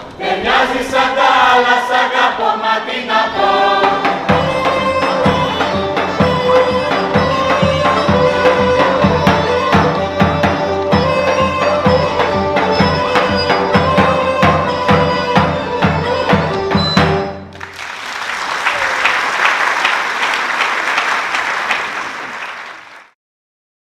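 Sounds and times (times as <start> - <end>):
folk band playing melody: 3.3 - 17.8
steady drum beat: 3.7 - 17.4
audience applause: 17.5 - 23.2.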